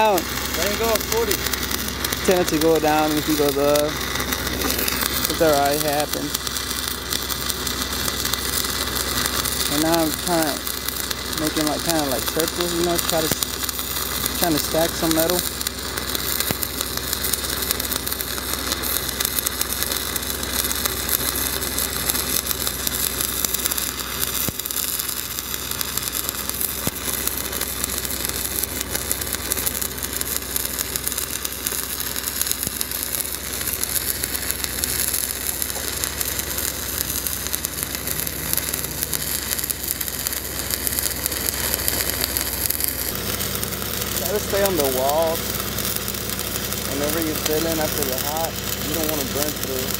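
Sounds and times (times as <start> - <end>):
welding arc crackling: 0.0 - 49.9.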